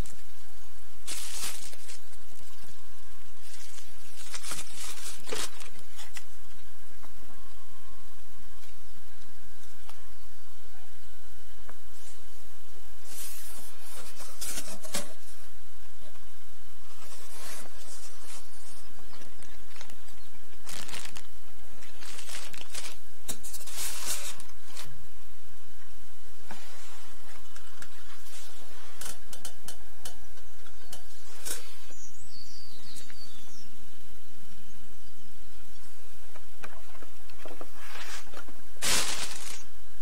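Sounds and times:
steady low hum: 0:00.0 - 0:40.0
foam and cardboard rustling: 0:01.0 - 0:02.8, 0:03.4 - 0:06.2, 0:13.0 - 0:15.3, 0:20.6 - 0:24.9, 0:37.7 - 0:39.7.

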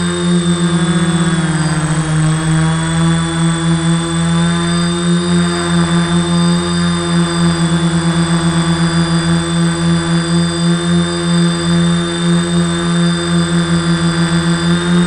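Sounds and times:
drone motors buzzing: 0:00.0 - 0:15.0
high-pitched whine: 0:00.0 - 0:15.0.

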